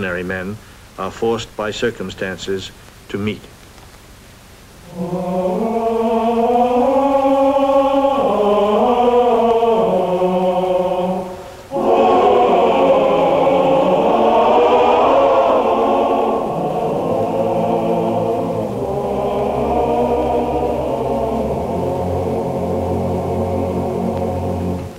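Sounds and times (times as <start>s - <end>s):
choir singing a cappella: 4.8s - 24.9s.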